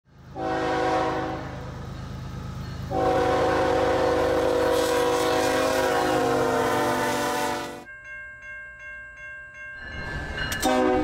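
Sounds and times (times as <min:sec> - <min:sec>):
train wheels on rails: 0:00.1 - 0:07.8, 0:09.8 - 0:11.0
locomotive air horn: 0:00.3 - 0:01.7, 0:02.9 - 0:07.9, 0:10.6 - 0:11.0.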